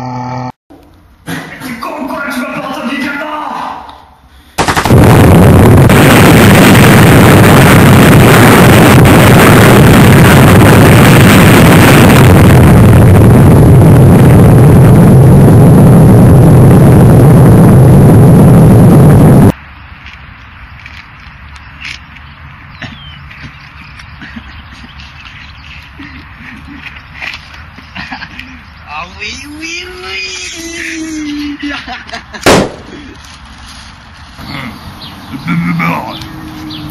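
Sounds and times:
explosion rumbling roar: 4.7s - 19.6s.

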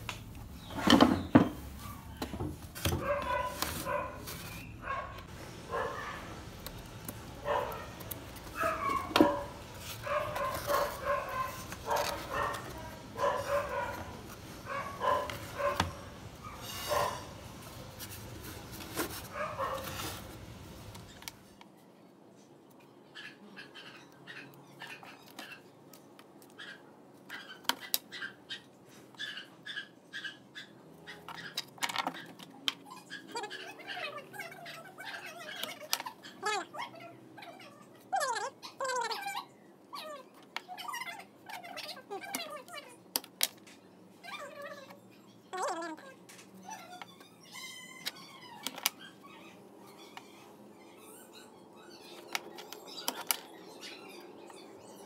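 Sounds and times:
dog barking: 3.0s - 6.4s, 7.4s - 17.4s, 19.3s - 19.9s.

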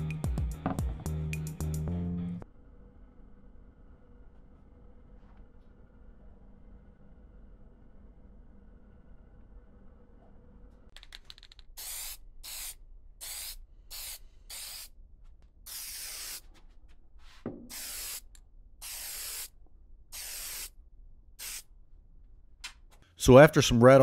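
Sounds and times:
aerosol can spraying bursts: 11.7s - 14.9s, 15.7s - 16.5s, 17.7s - 19.5s, 20.1s - 20.7s, 21.4s - 21.6s.

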